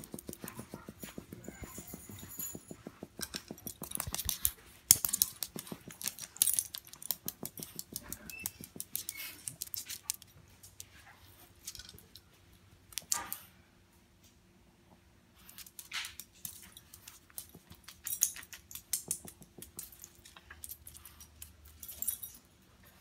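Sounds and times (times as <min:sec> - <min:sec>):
dog claws clicking on wood floor: 0:00.0 - 0:10.9, 0:15.4 - 0:22.4.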